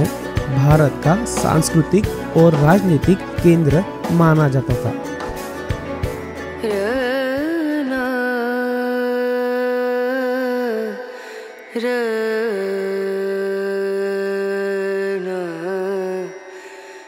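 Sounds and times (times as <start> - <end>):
solo voice singing chant: 6.6 - 16.5.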